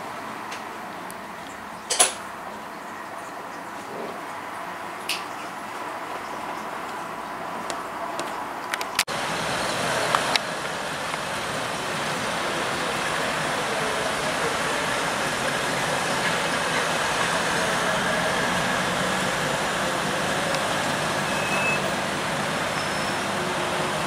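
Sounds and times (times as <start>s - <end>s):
car engines in street traffic: 5.6s - 24.0s.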